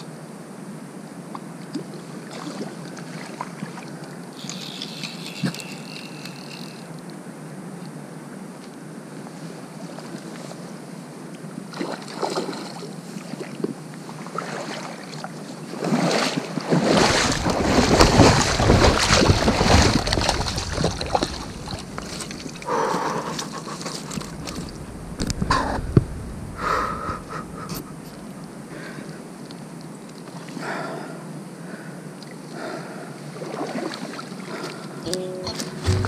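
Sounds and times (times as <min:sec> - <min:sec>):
water splashing and rushing: 0:14.2 - 0:26.6, 0:33.3 - 0:34.6.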